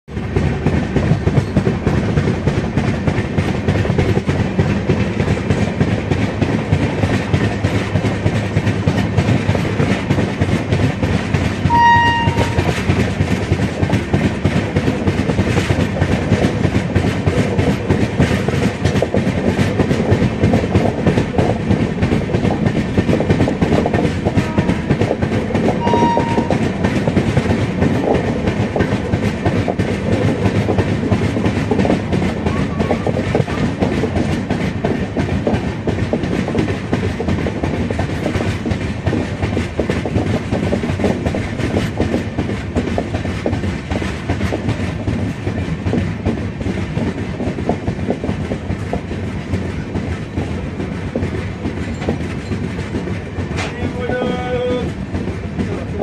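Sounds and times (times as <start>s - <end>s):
train wheels clattering over rail joints: 0.1s - 56.0s
high-pitched train horn blasts: 11.7s - 12.8s, 24.4s - 25.0s, 25.8s - 26.6s.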